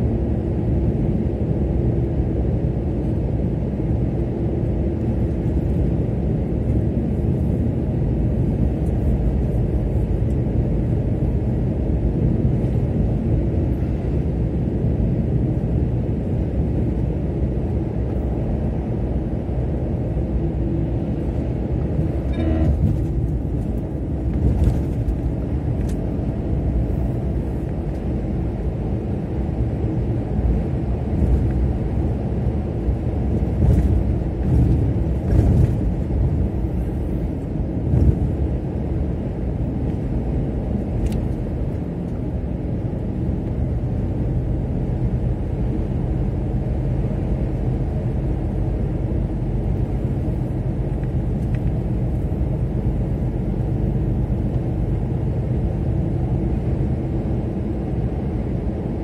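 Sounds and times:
car engine and tyres rumbling: 0.0 - 59.0.

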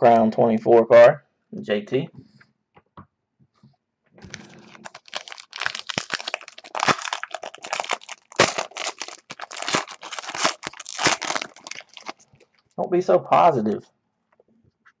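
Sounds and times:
card pack wrapper crinkling and tearing: 4.2 - 12.8.

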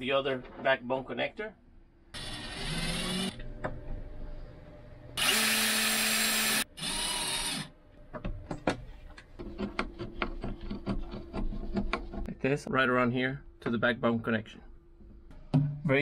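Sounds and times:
cordless drill spinning: 2.2 - 3.4, 5.2 - 7.7.

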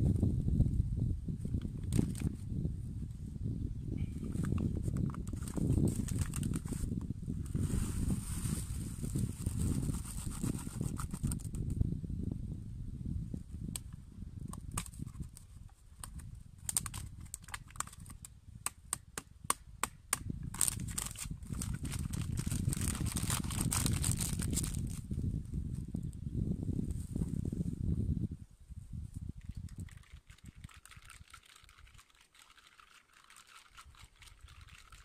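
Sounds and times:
wind rumble on microphone: 0.0 - 32.1, 33.6 - 35.0
plastic packet crinkling and tearing: 5.2 - 6.8, 16.1 - 18.1, 20.5 - 25.0, 29.8 - 35.0
sharp clicks and crackles: 16.0 - 18.3.

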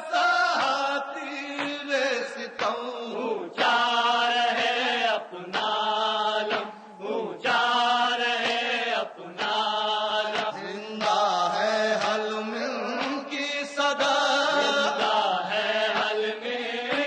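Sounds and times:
man chanting a lament: 10.3 - 16.1.

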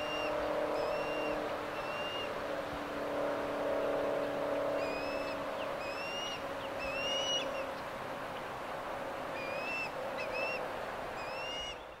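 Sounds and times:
osprey calling: 0.0 - 2.4, 4.8 - 7.8, 9.3 - 12.0.

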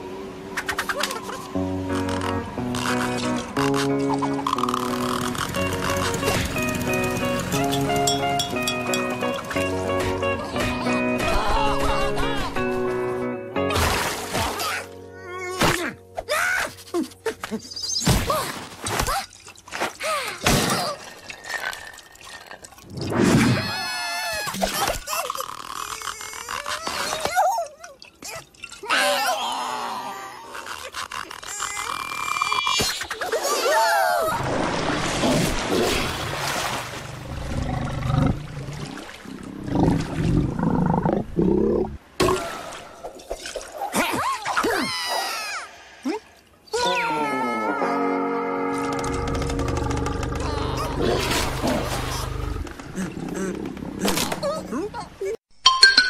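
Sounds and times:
water churning and splashing: 13.7 - 14.9, 33.1 - 44.9, 50.4 - 55.4
squeaky character cries: 46.7 - 48.1
cartoon crocodiles growling: 49.8 - 54.8.

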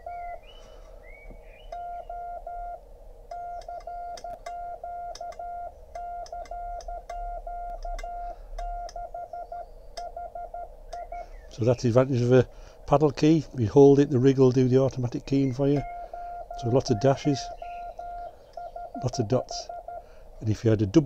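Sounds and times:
morse code beeping tone: 1.7 - 11.3, 15.5 - 20.2.

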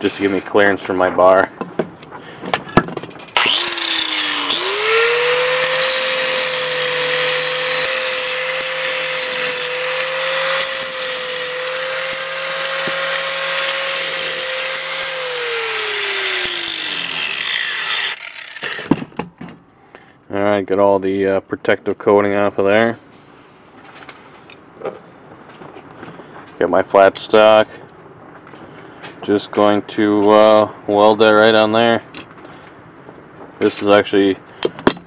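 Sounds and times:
angle grinder grinding steel: 3.4 - 18.9.

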